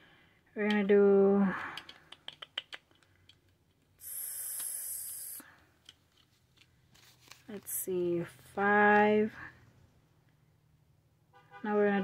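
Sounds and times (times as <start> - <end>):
steady high hiss: 4.0 - 5.4
paper rustling: 6.0 - 8.4.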